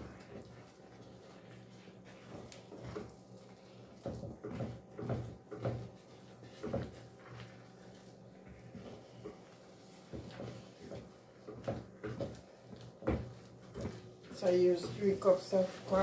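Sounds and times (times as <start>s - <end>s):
wooden spoon scraping a pot: 0.0s - 16.0s.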